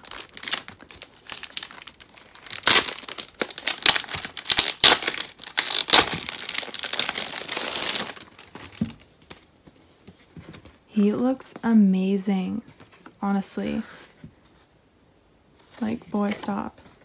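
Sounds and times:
plastic sleeve crinkling: 0:00.0 - 0:09.2.

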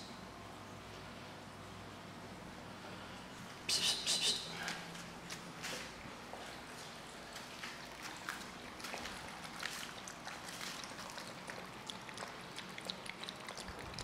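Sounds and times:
puppies crunching kibble: 0:07.4 - 0:14.0.

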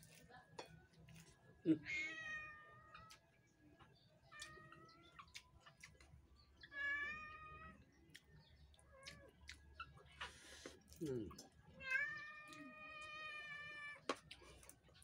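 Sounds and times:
cat meowing: 0:01.8 - 0:03.1, 0:06.7 - 0:07.8, 0:11.8 - 0:14.0.

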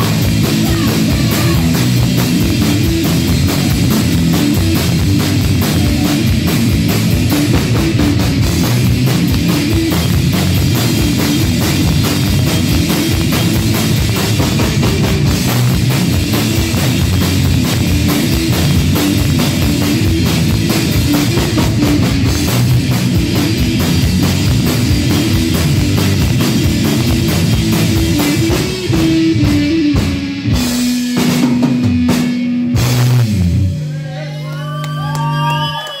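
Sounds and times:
drum kit: 0:00.0 - 0:34.0
electric guitar: 0:00.0 - 0:36.0.

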